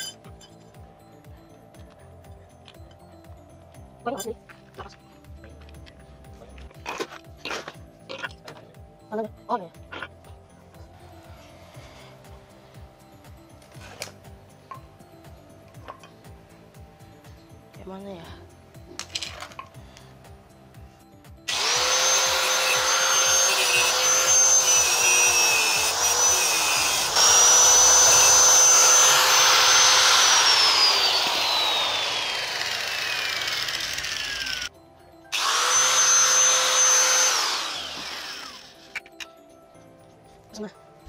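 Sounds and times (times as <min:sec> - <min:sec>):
angle grinder cutting metal: 0:21.5 - 0:34.7, 0:35.3 - 0:39.0.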